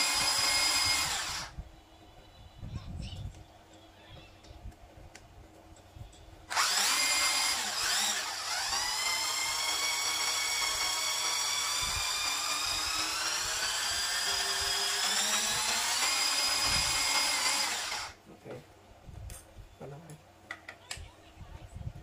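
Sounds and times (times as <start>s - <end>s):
electric motor whining: 0.0s - 1.6s, 6.5s - 18.2s.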